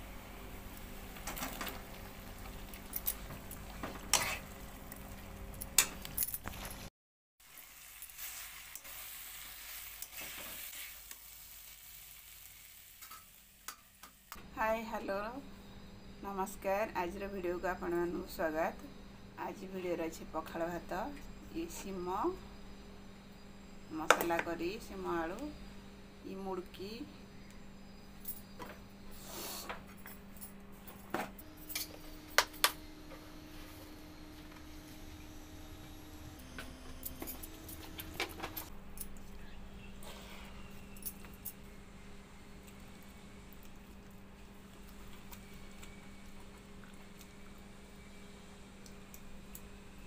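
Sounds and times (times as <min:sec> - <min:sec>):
spatula scraping pan: 0:04.0 - 0:04.5
food sizzling in a pan: 0:07.4 - 0:14.4.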